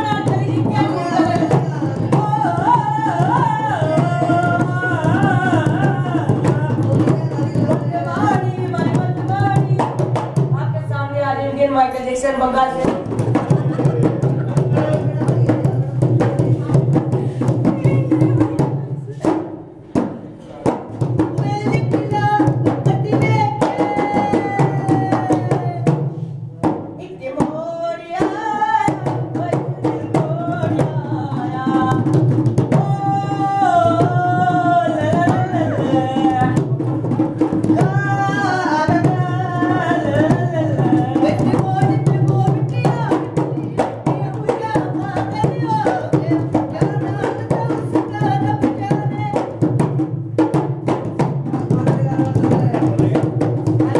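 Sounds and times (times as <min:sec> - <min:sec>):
hand drum quick rhythm: 0:00.0 - 0:11.0, 0:12.7 - 0:53.9.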